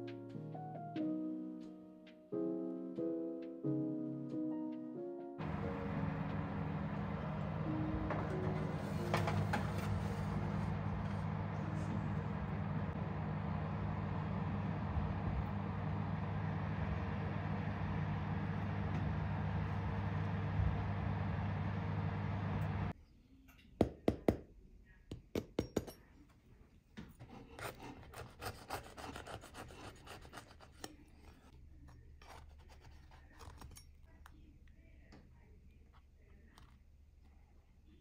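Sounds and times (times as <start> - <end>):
oven fan hum: 5.4 - 23.0
knife sawing bread crust: 27.2 - 31.5.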